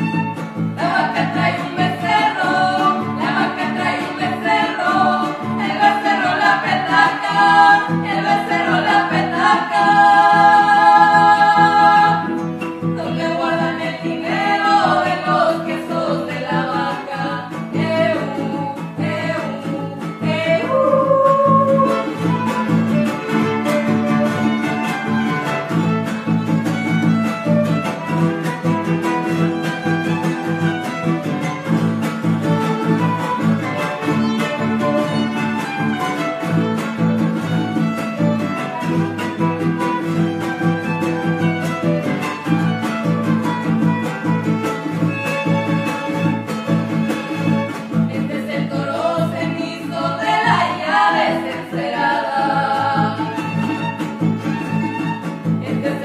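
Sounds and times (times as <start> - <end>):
guitars strumming: 0.0 - 56.0
violin: 0.0 - 56.0
women singing: 0.7 - 22.4, 48.0 - 54.0, 55.5 - 56.0.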